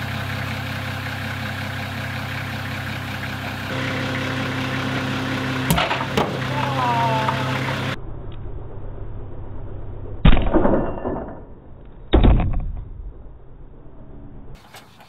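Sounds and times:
forklift engine idling: 0.0 - 8.0.

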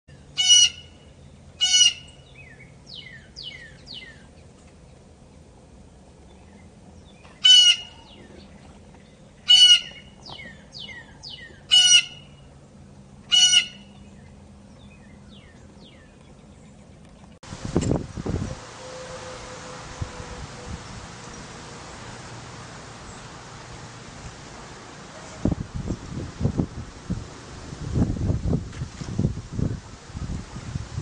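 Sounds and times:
blue jay harsh calls: 0.3 - 1.0, 1.6 - 4.2, 7.4 - 8.2, 9.4 - 12.5, 13.3 - 14.0.

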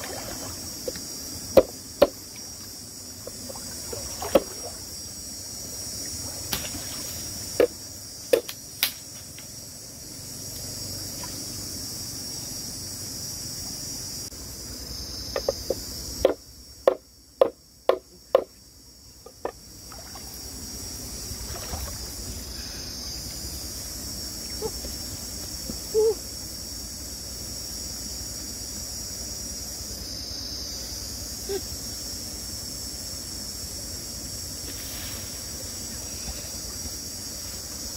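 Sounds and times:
high insect drone: 0.0 - 37.9
knife chopping on wooden board: 15.4 - 18.5.

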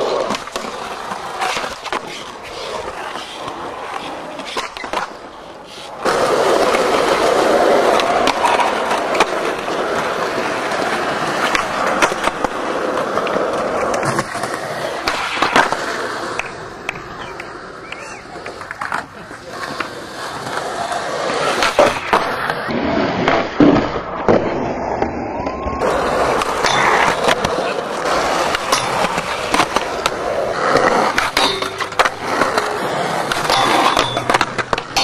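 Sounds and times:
skateboard clacks: 0.0 - 35.0
skateboard scraping ledge: 0.0 - 35.0
skateboard wheels rolling on concrete: 0.0 - 35.0.

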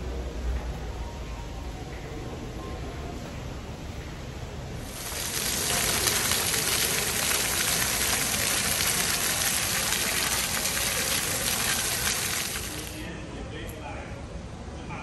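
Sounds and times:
fountain jets splashing on paving: 4.8 - 13.1.

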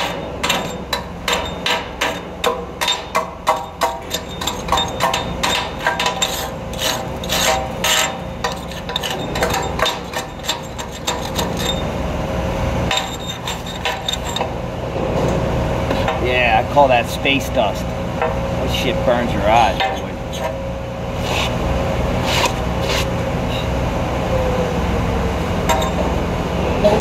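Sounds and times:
chipping hammer striking steel: 0.0 - 11.9.

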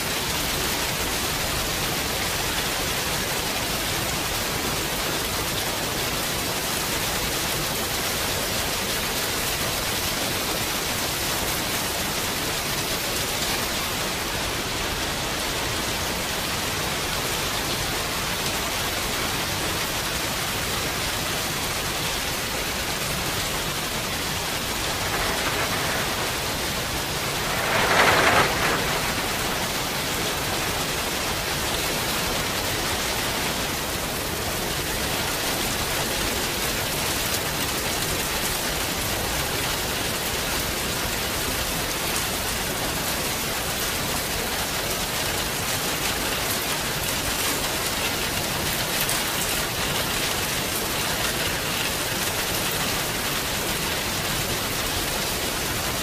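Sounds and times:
steady rain: 0.0 - 56.0.

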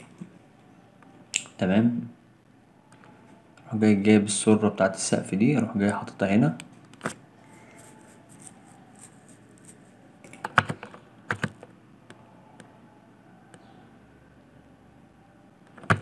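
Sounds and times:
keyboard and mouse clicks: 7.8 - 12.8, 15.7 - 16.0.

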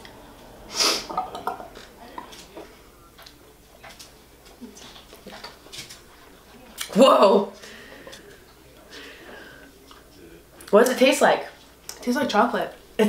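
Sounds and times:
glass bottle clinking: 1.1 - 2.3.

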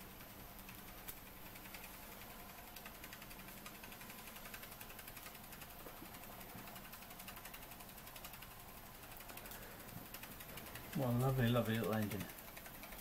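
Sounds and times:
model steam engine ticking: 0.0 - 13.0.

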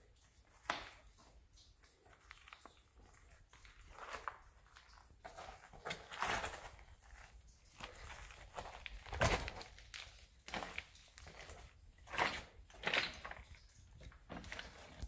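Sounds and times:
footsteps on rocky floor: 3.7 - 13.5.

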